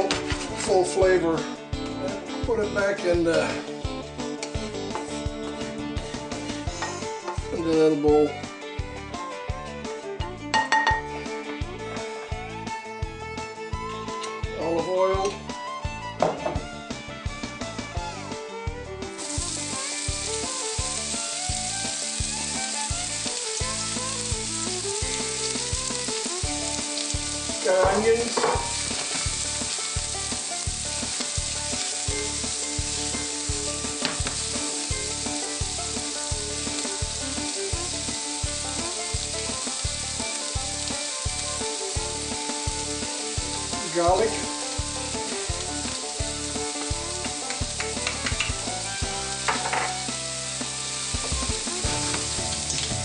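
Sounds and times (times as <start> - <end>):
onions sizzling in hot oil: 0.0 - 1.0, 19.0 - 53.0.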